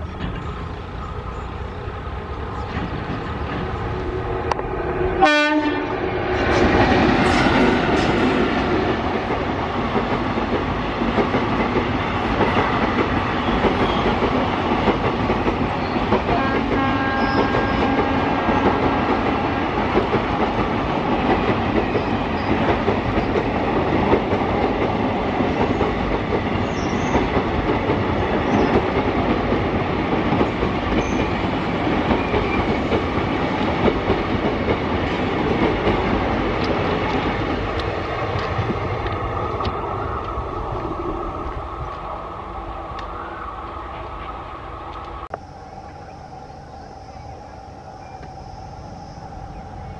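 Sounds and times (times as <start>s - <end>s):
train wheels clacking over rail joints: 0.0s - 4.7s, 6.4s - 40.4s
electric locomotive passing: 0.0s - 49.9s.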